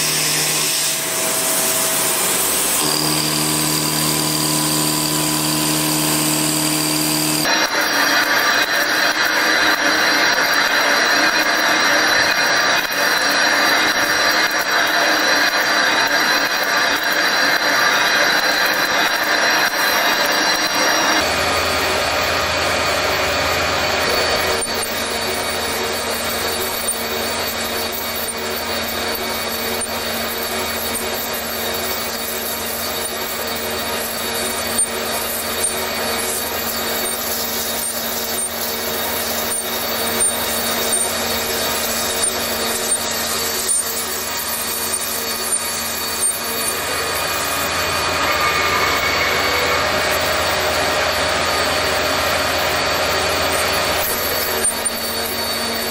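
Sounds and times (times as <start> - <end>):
machine hum: 0.0 - 14.4
lathe tool scraping metal: 0.0 - 55.9.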